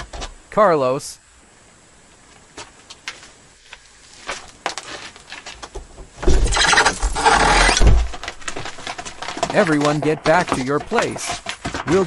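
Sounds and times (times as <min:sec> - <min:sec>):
low thuds: 0:05.9 - 0:12.0
small knocks: 0:07.8 - 0:12.0.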